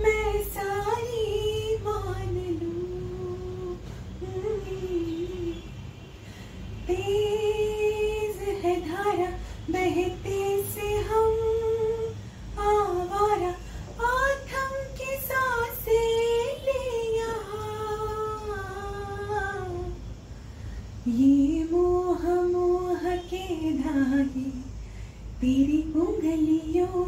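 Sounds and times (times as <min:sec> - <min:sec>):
woman singing solo: 0:00.0 - 0:05.7, 0:06.8 - 0:20.0.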